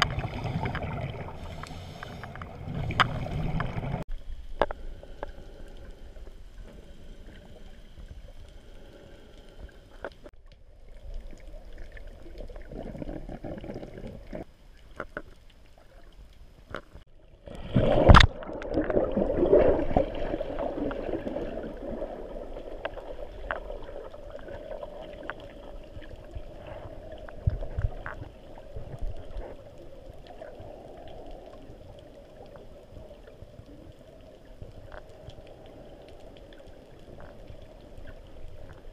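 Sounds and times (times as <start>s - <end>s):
small clicks underwater: 0.0s - 19.0s, 20.8s - 38.9s
underwater water movement: 0.0s - 38.9s
loud rush of bubbles: 17.5s - 23.8s.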